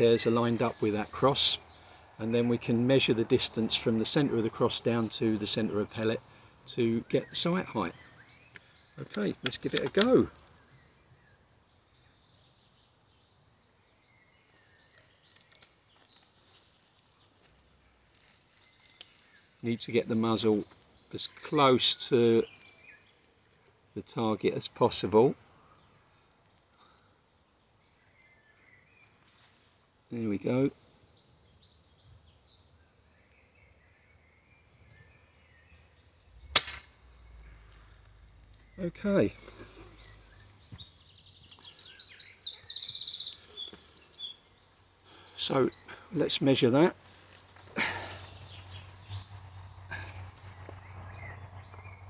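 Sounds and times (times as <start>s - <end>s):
distant bird chirps: 0.0s - 52.0s
faint bird chirps: 25.6s - 46.4s.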